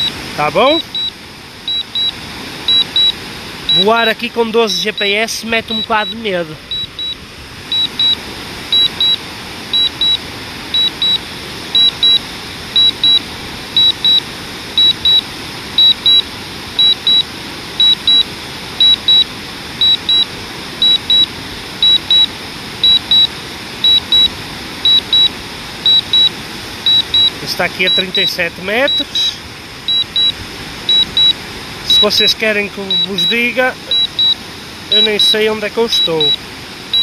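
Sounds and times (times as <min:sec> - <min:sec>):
remote controller beeping: 0:00.0 - 0:09.2, 0:09.8 - 0:10.2, 0:10.8 - 0:11.2, 0:11.8 - 0:12.2, 0:12.8 - 0:13.2, 0:13.8 - 0:14.2, 0:14.8 - 0:15.2, 0:15.8 - 0:16.2, 0:16.8 - 0:17.2, 0:17.8 - 0:18.2, 0:18.8 - 0:19.2, 0:19.8 - 0:20.2, 0:20.8 - 0:24.3, 0:24.9 - 0:25.3, 0:25.9 - 0:26.3, 0:26.9 - 0:37.0
steady rushing hiss: 0:20.4 - 0:37.0.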